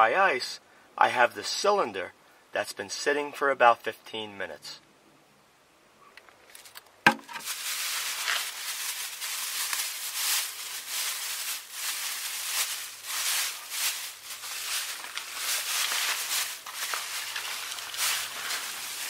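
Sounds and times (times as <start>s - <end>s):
plastic bag crinkling: 6.6s - 19.0s.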